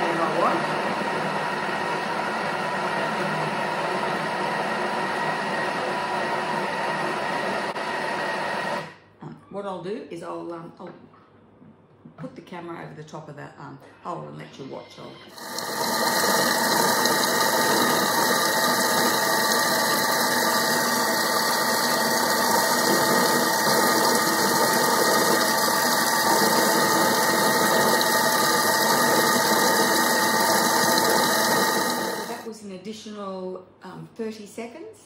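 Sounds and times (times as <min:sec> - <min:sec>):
blender motor hum: 0:00.0 - 0:09.0, 0:15.3 - 0:32.5.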